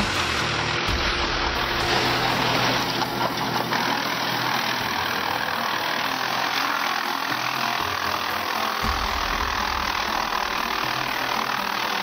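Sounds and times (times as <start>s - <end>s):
wood chipper chewing bamboo: 0.0s - 12.0s.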